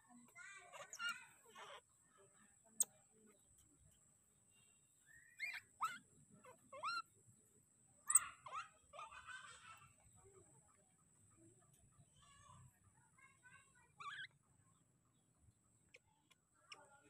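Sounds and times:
baby monkey squeaky calls: 0:00.6 - 0:01.8, 0:05.1 - 0:07.1, 0:08.0 - 0:09.7, 0:14.0 - 0:14.4.

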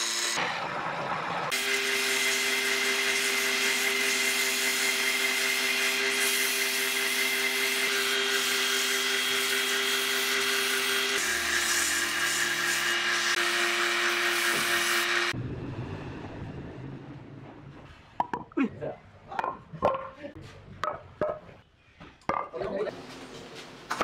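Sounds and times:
sandpaper hissing on spinning wood: 0:01.6 - 0:15.3.

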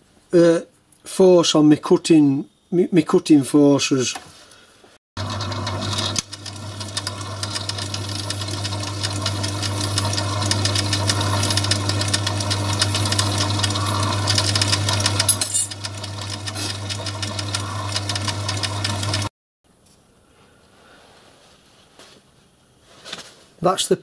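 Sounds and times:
lathe running: 0:05.2 - 0:19.3.

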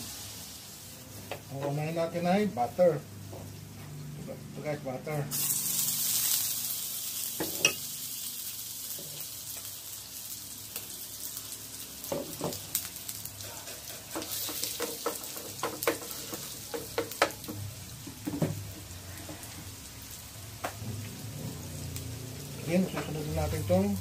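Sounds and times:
butter sizzling in a pan: 0:00.0 - 0:03.7, 0:05.3 - 0:24.0
spatula scraping a pan: 0:13.4 - 0:16.6.

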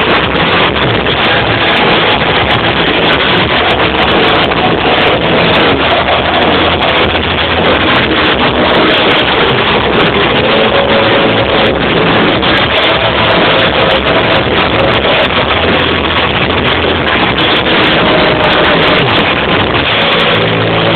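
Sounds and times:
rock band playing loud: 0:00.0 - 0:20.9.

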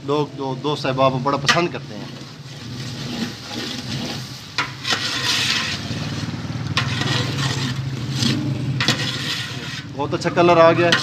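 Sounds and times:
food sizzling in oil: 0:01.4 - 0:10.0.

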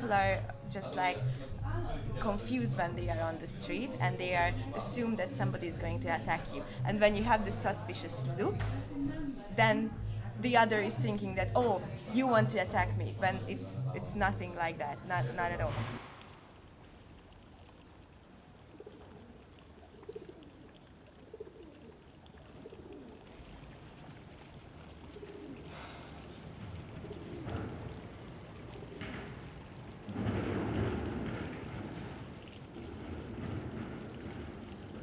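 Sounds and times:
fountain trickling: 0:00.0 - 0:08.6, 0:09.3 - 0:35.0
water splashing in basin: 0:13.2 - 0:35.0
pigeons cooing: 0:18.6 - 0:35.0.

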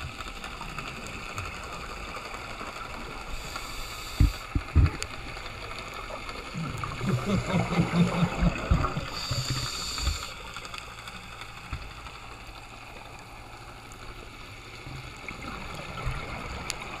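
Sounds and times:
scuba exhaust bubbles: 0:00.0 - 0:17.0
soft water gurgles: 0:00.0 - 0:17.0
underwater hiss: 0:03.1 - 0:05.1, 0:06.5 - 0:11.0.

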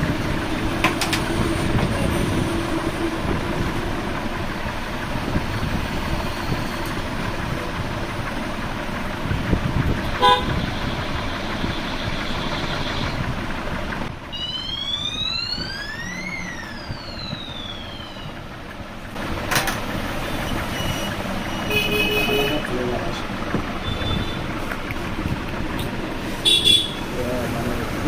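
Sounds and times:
passing vehicles: 0:00.0 - 0:28.0
car horn toot: 0:10.2 - 0:13.2, 0:20.8 - 0:22.8, 0:23.8 - 0:24.5, 0:26.4 - 0:27.1
whining tone rising and falling: 0:14.3 - 0:18.7.

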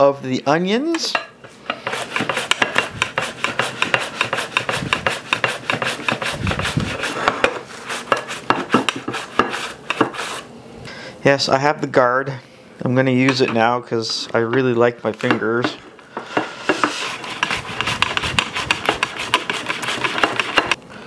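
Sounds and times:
onion scraping over mandoline slicer: 0:01.6 - 0:10.5, 0:16.2 - 0:20.8.

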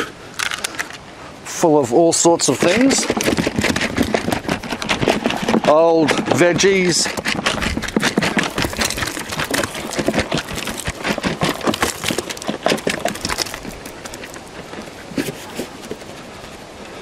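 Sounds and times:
scraps clattering from plastic bucket: 0:02.4 - 0:14.3.

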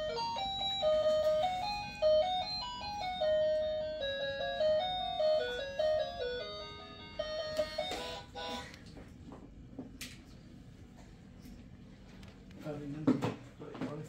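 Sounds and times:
toy car electronic beeping melody: 0:00.0 - 0:08.6.

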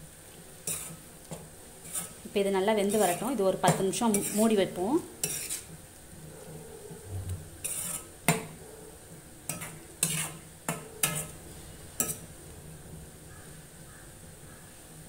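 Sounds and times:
spatula scraping and knocking pan: 0:00.6 - 0:05.8, 0:07.6 - 0:08.6, 0:09.5 - 0:11.4, 0:12.0 - 0:12.3.

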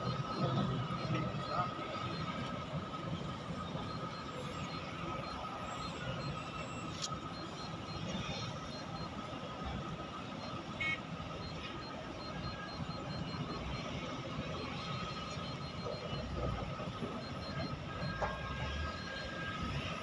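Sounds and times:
distant heavy machinery drone: 0:00.0 - 0:20.0
high mechanical whine: 0:00.0 - 0:20.0.

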